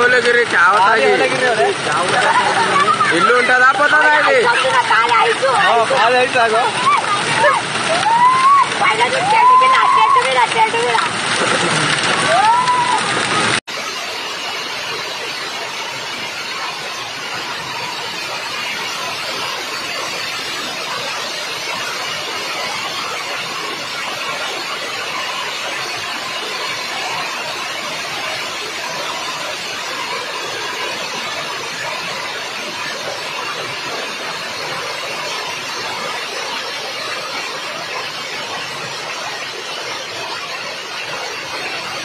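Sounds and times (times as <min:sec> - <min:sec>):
hailstones hitting ground: 0:00.0 - 0:13.6.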